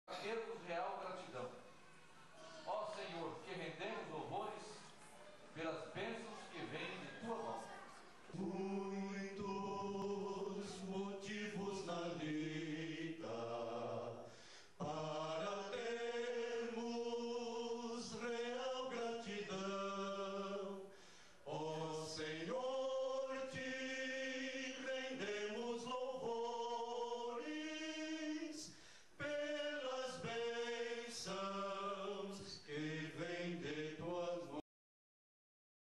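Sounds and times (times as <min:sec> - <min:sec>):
men singing in harmony: 0:08.3 - 0:34.6.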